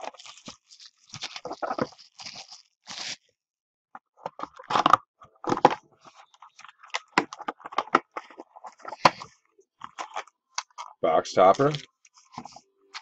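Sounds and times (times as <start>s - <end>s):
packaging crinkling and tearing: 0.0s - 3.3s, 4.4s - 13.0s.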